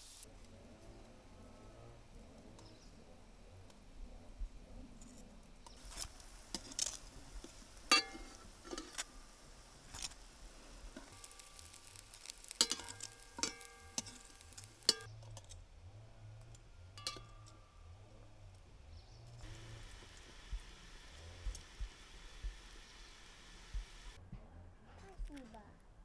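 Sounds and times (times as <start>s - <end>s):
dishes and utensils clinking: 7.5s - 9.1s, 12.6s - 15.5s, 17.0s - 17.6s.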